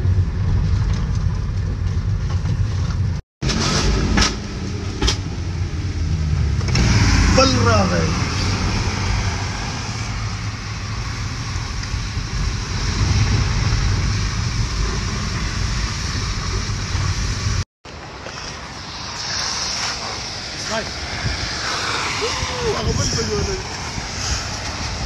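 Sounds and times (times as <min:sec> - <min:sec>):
engine and road rumble: 0:00.0 - 0:25.0
wind noise on microphone: 0:08.2 - 0:25.0
tyres hissing through water: 0:14.4 - 0:25.0.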